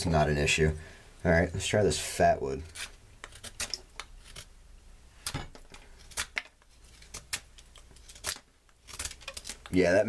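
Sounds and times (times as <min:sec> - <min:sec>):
knife shaving wood: 0:01.9 - 0:04.5, 0:05.8 - 0:10.0.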